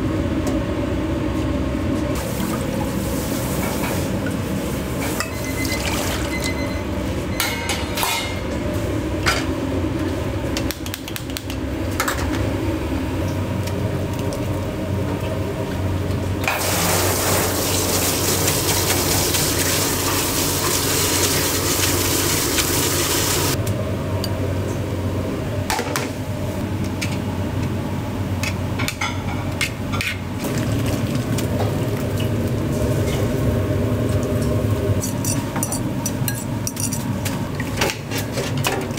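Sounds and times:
kitchen equipment hum: 0:00.0 - 0:38.9
dishes and utensils clinking: 0:05.0 - 0:08.5, 0:35.0 - 0:37.1.

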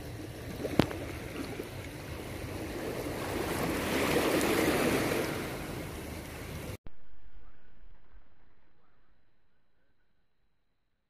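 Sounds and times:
small waves washing ashore: 0:00.0 - 0:06.8.

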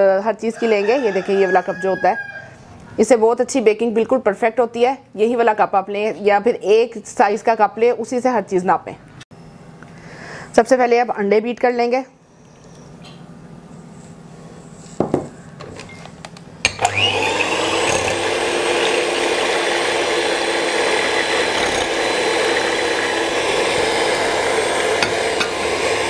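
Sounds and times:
electric hand mixer whisking: 0:16.8 - 0:26.0.

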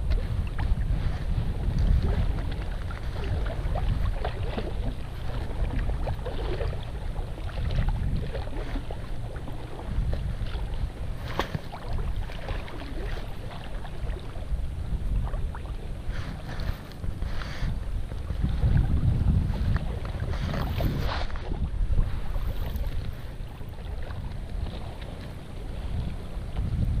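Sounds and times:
water lapping against boat hull: 0:00.0 - 0:27.0
wind buffeting microphone: 0:00.0 - 0:27.0
small splashes: 0:01.8 - 0:14.4.

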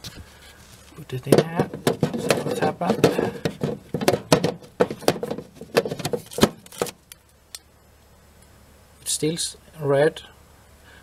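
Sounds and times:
hard plastic clicks and knocks: 0:01.3 - 0:07.0.

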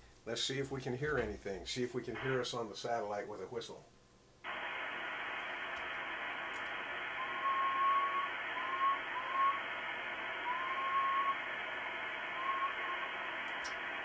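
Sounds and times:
radio receiver hiss: 0:02.1 - 0:03.6, 0:04.4 - 0:14.0
person whistling into microphone: 0:07.1 - 0:09.7, 0:10.4 - 0:11.5, 0:12.4 - 0:13.1.

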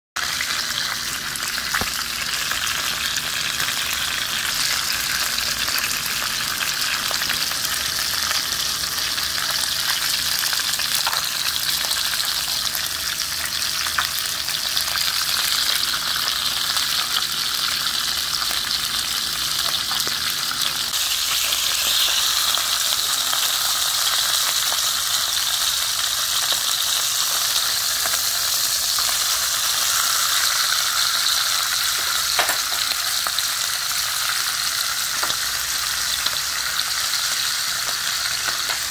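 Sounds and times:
fish sizzling in hot oil: 0:00.2 - 0:38.9.

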